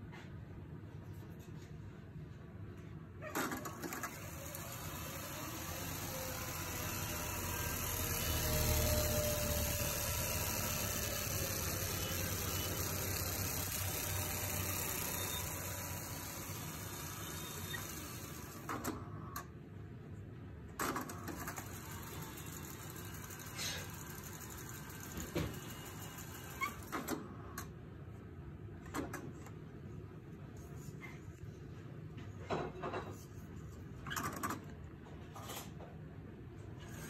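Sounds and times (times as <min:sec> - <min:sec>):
tape whirring at high speed: 0:03.8 - 0:19.0, 0:21.4 - 0:27.1.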